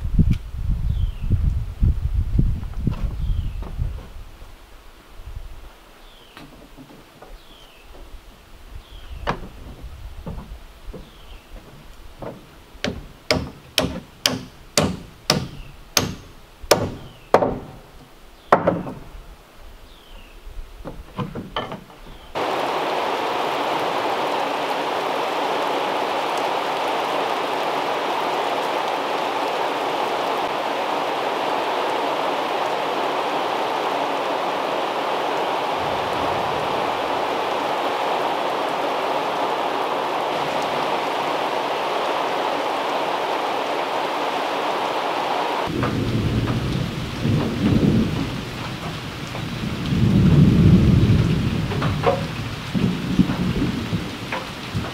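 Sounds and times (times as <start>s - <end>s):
rain falling: 0.0s - 54.9s
low thunder rumble: 45.6s - 54.9s.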